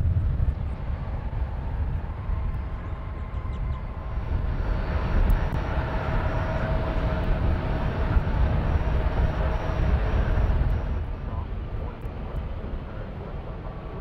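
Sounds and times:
jet engines running: 0.0 - 14.0.

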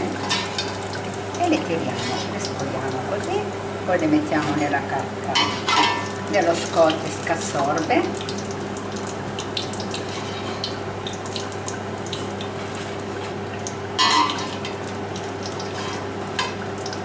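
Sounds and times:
deep-frying sizzle with crackles: 0.0 - 17.0
skimmer clattering: 5.3 - 8.0, 14.0 - 16.7.

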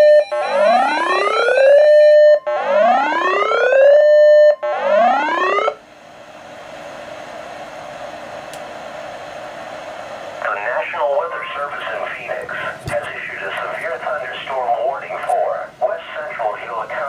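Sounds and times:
electronic weather alert siren: 0.0 - 5.8
radio hiss: 6.4 - 17.0.

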